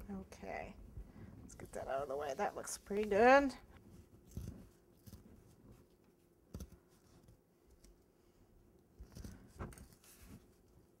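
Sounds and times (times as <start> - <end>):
scissors snipping cardboard: 6.5 - 6.8.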